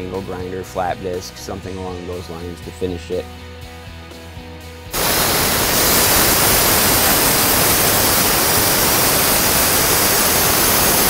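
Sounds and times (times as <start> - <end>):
plasma cutter arc hissing: 5.0 - 11.0.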